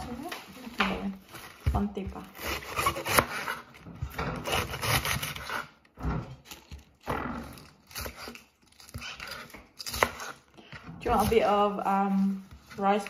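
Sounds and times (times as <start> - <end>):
knife slicing crisp lettuce: 2.2 - 3.8, 4.4 - 5.8, 7.5 - 13.0.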